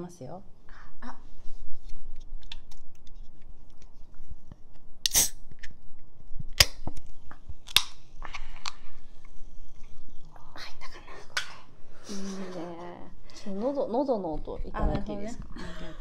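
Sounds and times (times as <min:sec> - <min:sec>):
short hiss of can: 0:05.0 - 0:05.4
can opening cracks: 0:05.0 - 0:05.8, 0:06.5 - 0:07.0, 0:07.6 - 0:08.0.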